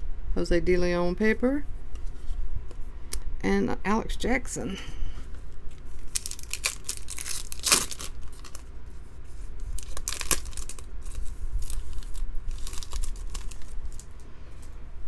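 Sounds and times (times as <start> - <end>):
foil wrapper tearing and crinkling: 6.0 - 8.7, 9.6 - 14.2.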